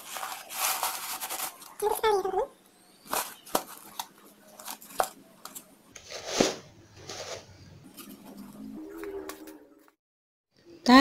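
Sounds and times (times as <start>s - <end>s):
scraping rustle: 0.0s - 1.9s, 6.0s - 8.4s.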